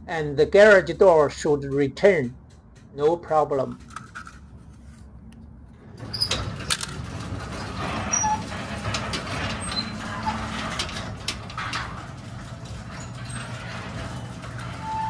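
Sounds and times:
garage door opener running: 5.8s - 15.0s.

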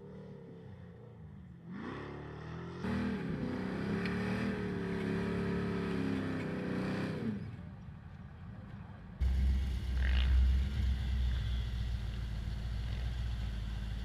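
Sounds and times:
truck engine revving: 9.2s - 14.0s.

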